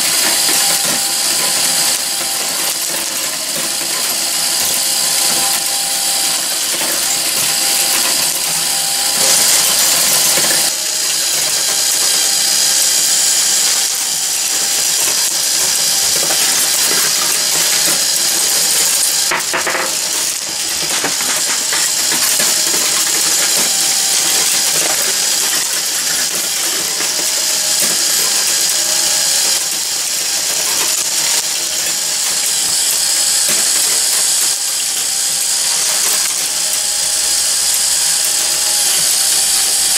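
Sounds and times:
marbles clattering on metal: 0.0 - 39.9
mechanical whir: 0.0 - 39.9.

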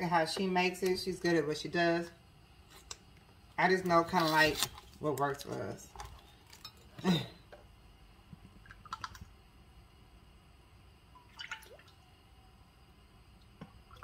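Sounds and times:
oil trickling and dripping: 8.5 - 9.3, 11.1 - 12.2, 13.3 - 14.0.

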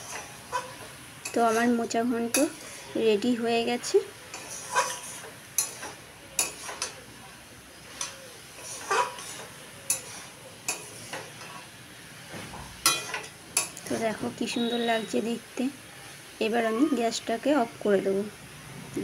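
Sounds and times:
metal spatula scraping a pan: 0.0 - 3.0, 4.3 - 7.0, 7.8 - 11.7, 12.8 - 14.9
faint sizzle: 0.0 - 19.0.

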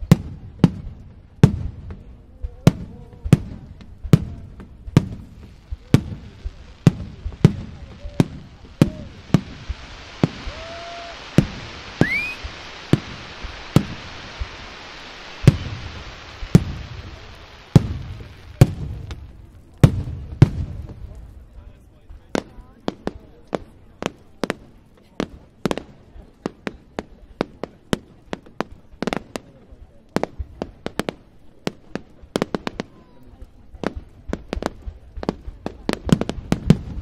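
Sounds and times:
firework shells bursting: 2.7 - 24.7
hiss: 4.1 - 21.4
rising whistle: 10.4 - 12.5.

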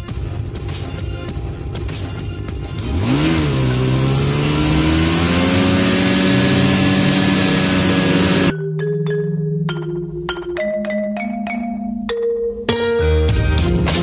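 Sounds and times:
snowmobile engine revving: 2.7 - 8.5
marimba music: 8.5 - 13.7.

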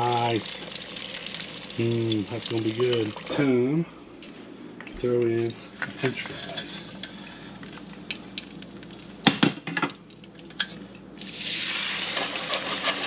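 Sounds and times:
fries sizzling in hot oil: 0.0 - 3.4, 11.2 - 13.0.

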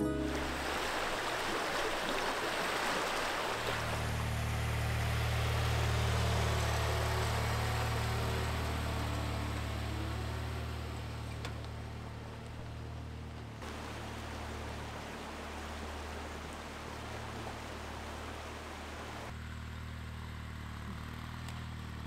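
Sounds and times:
rushing stream water: 0.0 - 11.3, 13.6 - 19.4
tractor engine: 3.8 - 22.0.

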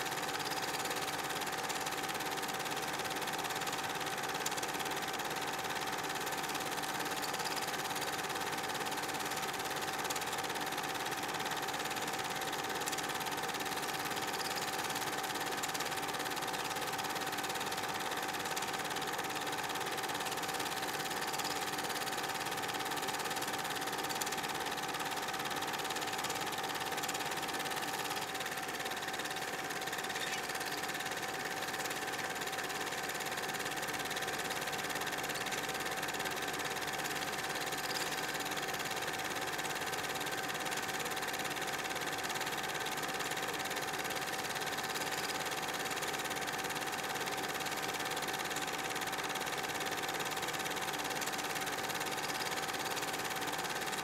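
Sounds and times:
film projector whirring: 0.0 - 54.0.

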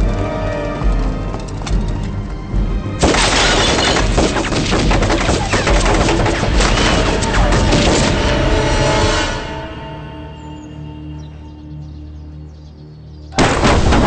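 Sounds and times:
dramatic film music: 0.0 - 14.0
crackling and clattering debris: 3.0 - 8.2
bomb explosion blast: 13.4 - 14.0.

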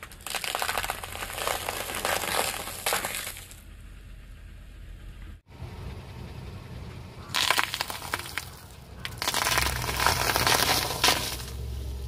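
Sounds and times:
tyre crushing crunchy snacks: 0.0 - 3.6, 7.3 - 11.6
low rumble: 0.7 - 12.0.

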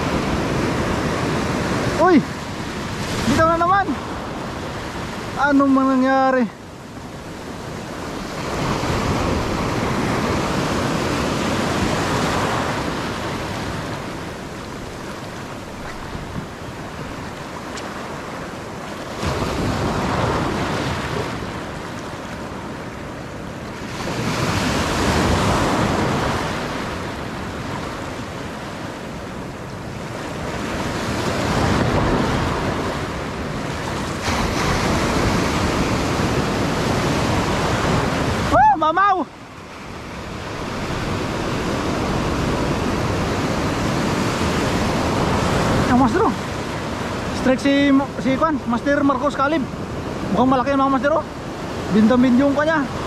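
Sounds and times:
ocean surf breaking over rocks: 0.0 - 53.0
wind buffeting microphone: 6.6 - 38.7, 39.8 - 47.4.

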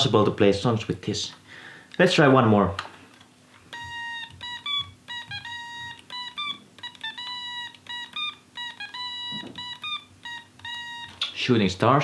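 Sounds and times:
otamatone melody: 3.8 - 11.3.

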